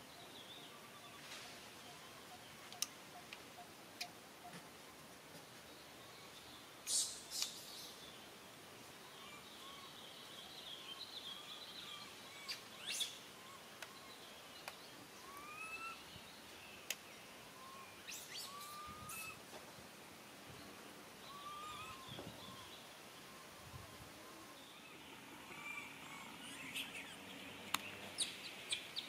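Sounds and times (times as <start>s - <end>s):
chirping calls: 17.6s - 19.4s, 21.3s - 23.6s.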